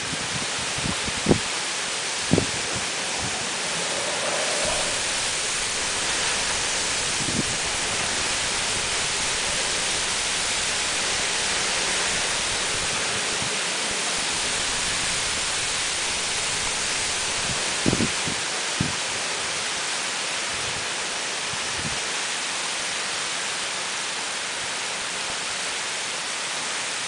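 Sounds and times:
trees thrashing in wind: 0.0s - 19.7s
heavy driving rain: 0.0s - 27.0s.

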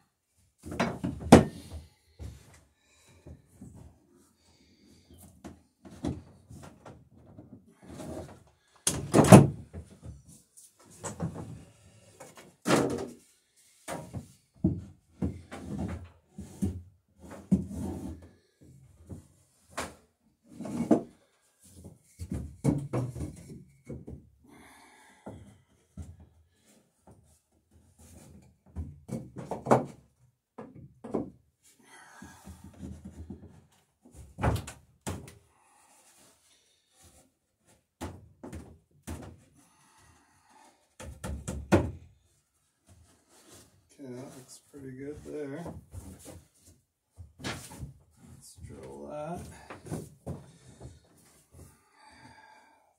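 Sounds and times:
wooden knocks and thuds: 0.6s - 2.5s, 22.2s - 24.2s, 28.7s - 30.0s, 30.6s - 31.4s, 41.0s - 42.0s.

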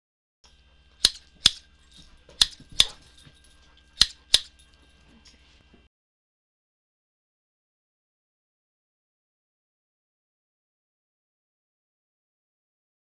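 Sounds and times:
faint low hum: 0.5s - 5.9s.

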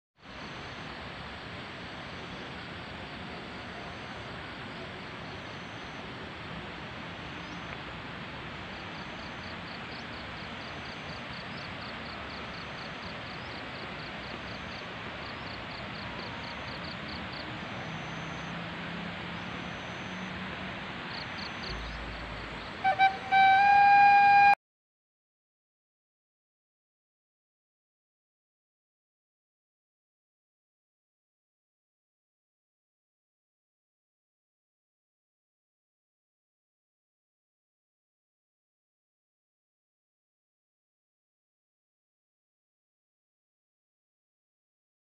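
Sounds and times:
outdoor ambient hiss: 0.2s - 24.6s
loud steady pitched tone: 21.4s - 24.6s.

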